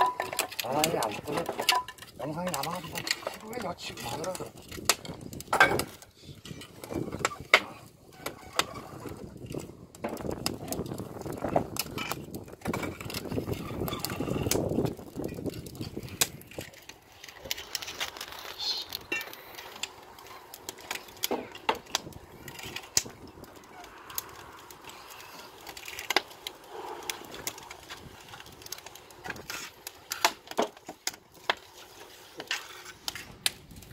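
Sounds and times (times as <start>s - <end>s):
firewood knocking together: 0.0s - 8.8s, 9.5s - 18.3s, 20.6s - 24.3s, 29.2s - 31.6s.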